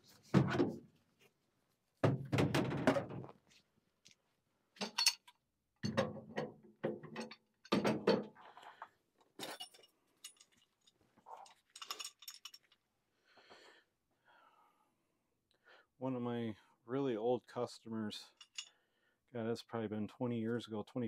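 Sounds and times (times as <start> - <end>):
metal tools knocking and clinking: 4.8 - 8.3, 9.4 - 12.8, 18.3 - 18.7.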